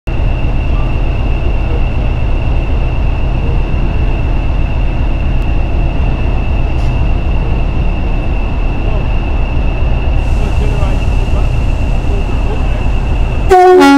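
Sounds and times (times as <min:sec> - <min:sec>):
diesel locomotive engine rumble: 0:00.1 - 0:13.9
turbocharger whistle: 0:13.5 - 0:13.9.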